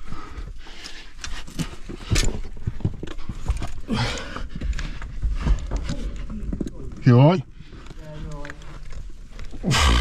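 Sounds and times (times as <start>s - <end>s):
boots knocking and scraping on rock: 1.3s - 10.0s
person grunting: 9.6s - 10.0s.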